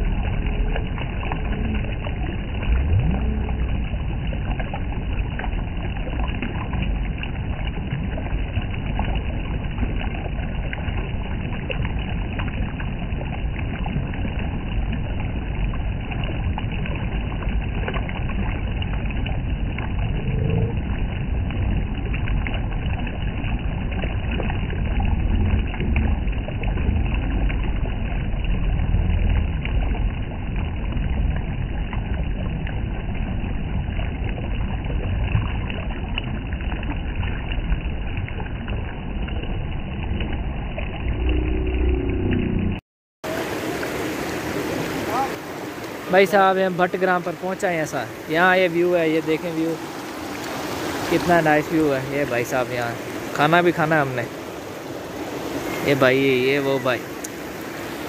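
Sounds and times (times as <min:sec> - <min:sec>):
river rushing over stones: 0:43.2 - 0:58.0.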